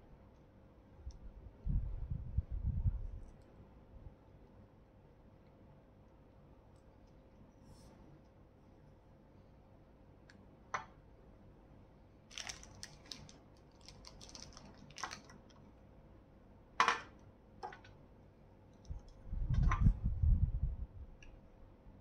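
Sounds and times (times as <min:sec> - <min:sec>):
low rubbing rumble: 0:19.2 - 0:21.1.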